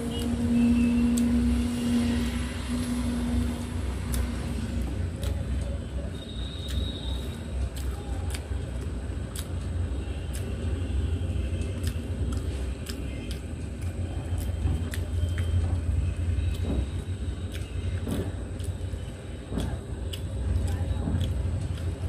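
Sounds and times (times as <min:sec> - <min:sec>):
chewing: 0:03.3 - 0:22.0.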